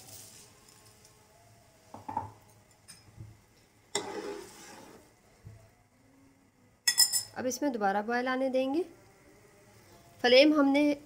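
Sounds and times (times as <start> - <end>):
metal spoon stirring pot: 3.9 - 5.0.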